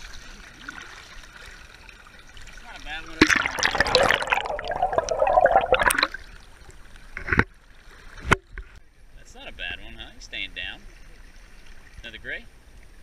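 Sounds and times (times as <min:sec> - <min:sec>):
river water splashing and gurgling: 0:00.0 - 0:08.3.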